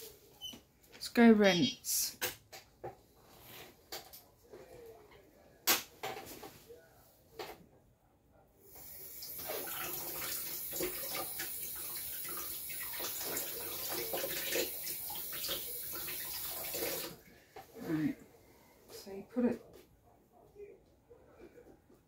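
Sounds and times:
tap water running: 8.8s - 17.2s.

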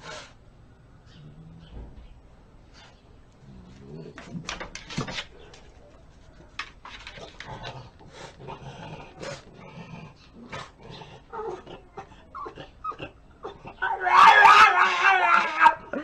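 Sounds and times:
dog claws scratching wooden door: 4.1s - 5.7s, 6.4s - 7.8s.

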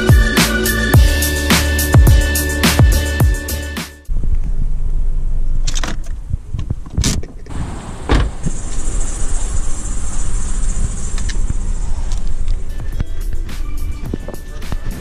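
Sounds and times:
steady low rumble: 4.1s - 15.0s
car door opening and shutting: 5.6s - 9.0s.

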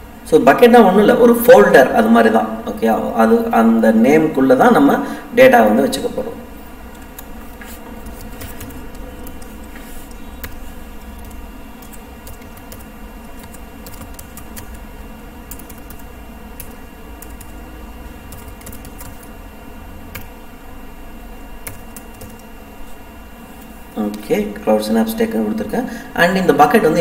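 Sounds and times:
steady background hum: 0.0s - 27.0s.

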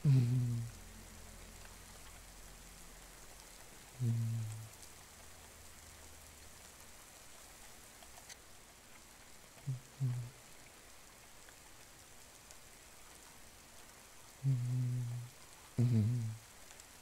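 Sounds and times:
man humming: 0.0s - 0.8s, 4.0s - 4.7s, 9.7s - 10.3s, 14.4s - 16.4s
faint rain: 0.0s - 17.0s.

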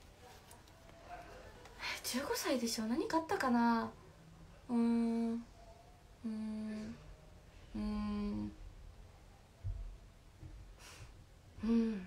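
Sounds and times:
girl humming mmm: 11.6s - 12.0s.

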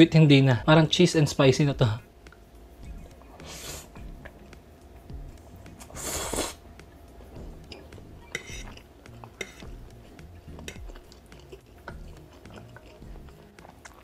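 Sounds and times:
loud noodle slurp: 5.9s - 6.6s
wet chewing: 7.6s - 14.0s
fork scraping ceramic plate: 8.3s - 8.8s, 9.4s - 9.7s.

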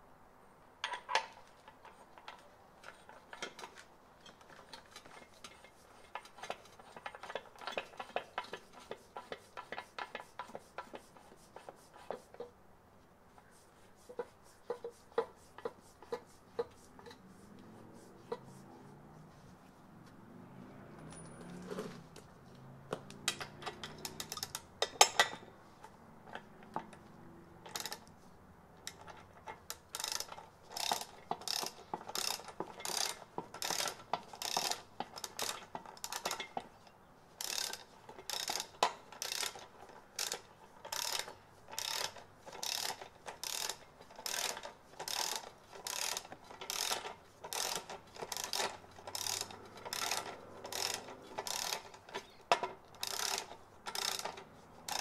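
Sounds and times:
ratchet wrench clicking: 3.0s - 11.0s, 23.1s - 25.5s, 27.6s - 28.1s, 28.8s - 36.7s, 37.4s - 55.0s.

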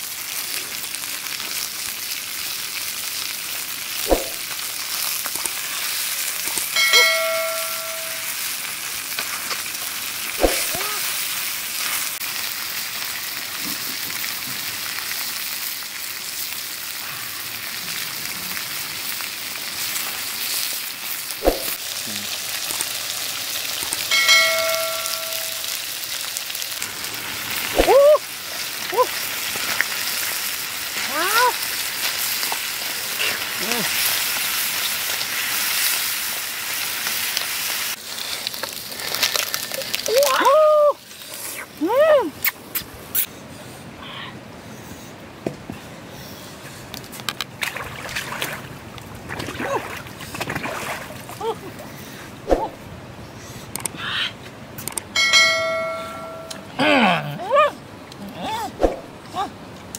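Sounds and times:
shellfish sizzling in a wok: 0.0s - 41.8s
short ringing tone: 6.8s - 8.4s, 24.1s - 25.7s, 55.2s - 56.7s.

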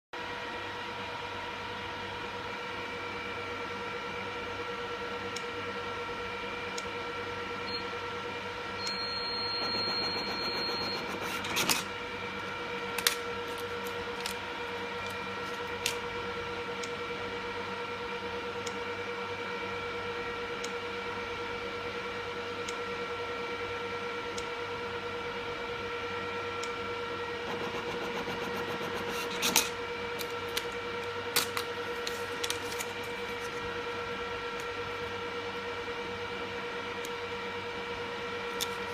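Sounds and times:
electrical hum with high whine: 0.1s - 38.9s
ticket printer printing: 9.5s - 11.9s
sharp clicks of ticket cutter: 9.6s - 11.9s.

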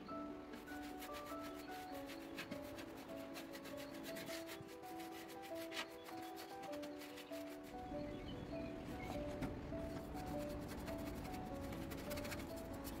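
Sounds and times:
soft background music: 0.0s - 13.0s
paintbrush scrubbing on metal: 0.6s - 7.9s, 10.1s - 13.0s.

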